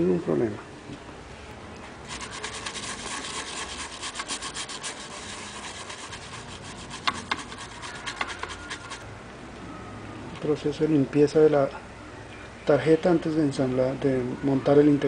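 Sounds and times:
swab scrubbing circuit board: 2.0 - 9.0.

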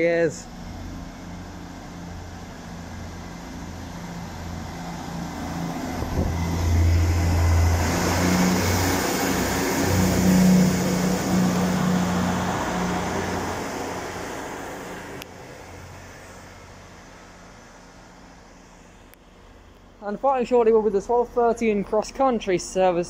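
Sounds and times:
diesel train engine hum: 0.0 - 23.0
hiss of passing train coaches: 0.5 - 18.8.

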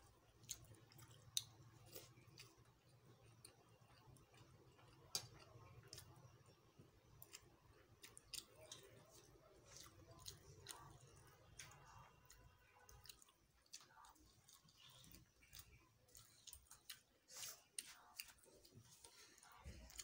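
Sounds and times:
chewing: 0.0 - 20.0.

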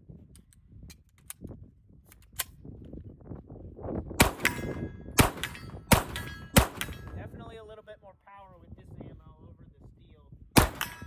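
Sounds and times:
gunshots: 4.2 - 7.3, 10.6 - 11.0.

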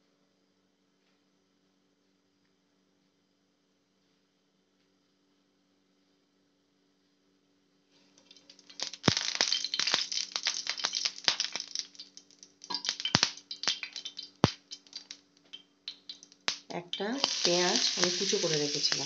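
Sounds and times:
seeds crackling in hot oil: 8.1 - 19.0.

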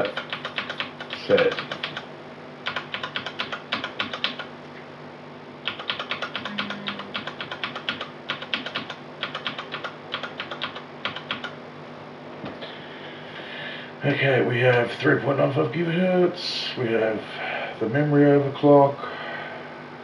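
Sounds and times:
keyboard key tapping rapidly: 0.0 - 4.5, 5.6 - 11.6.

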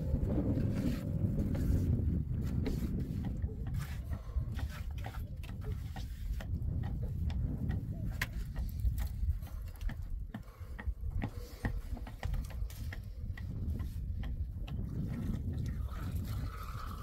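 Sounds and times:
steady low rumble: 0.0 - 11.3.

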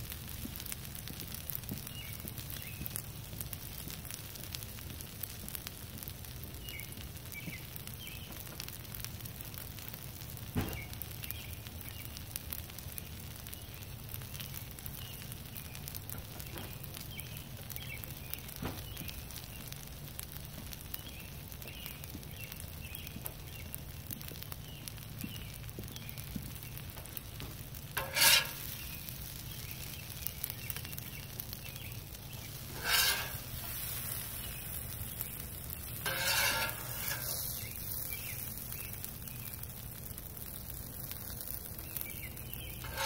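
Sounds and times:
food sizzling on a griddle: 0.0 - 43.0
birds chirping: 28.0 - 39.6.

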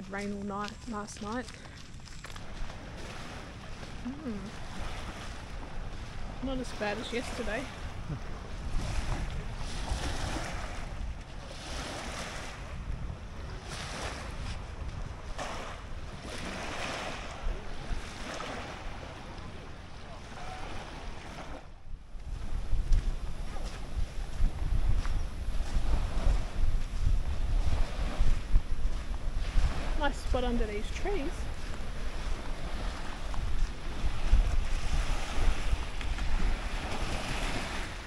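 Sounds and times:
wind buffeting microphone: 0.0 - 38.0
rushing hiss of wind: 22.0 - 38.0.

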